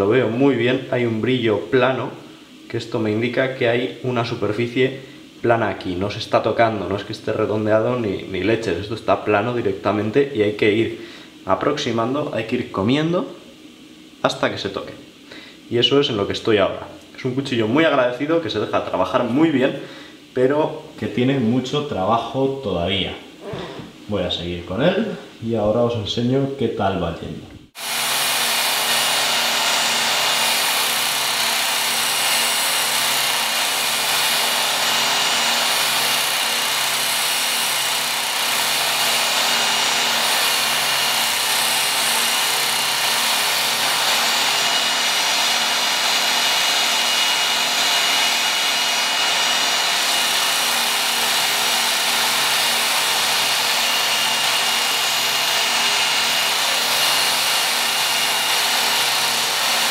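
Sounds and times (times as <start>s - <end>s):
belt sharpener grinding knife: 27.8s - 59.9s.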